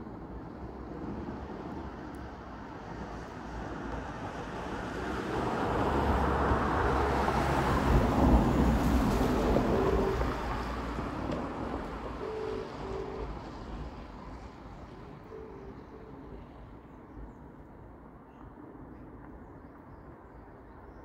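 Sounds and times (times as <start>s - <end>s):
vehicle passing on wet road: 2.9s - 14.6s.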